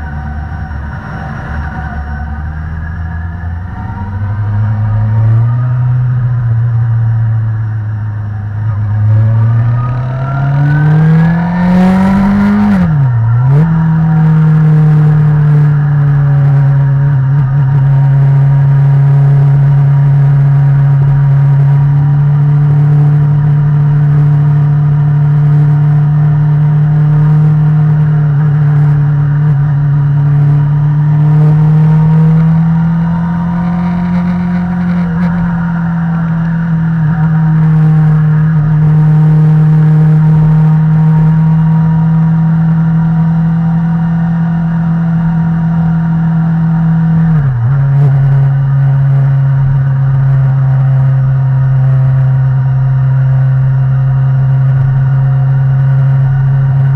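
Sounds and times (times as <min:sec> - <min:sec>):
motorcycle engine revving: 0:00.0 - 0:56.9.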